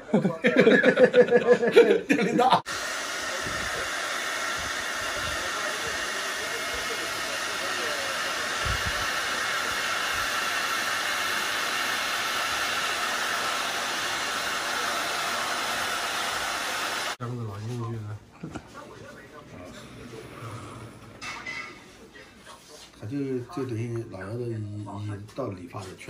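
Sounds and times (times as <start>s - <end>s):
hair dryer blowing: 2.6s - 17.2s.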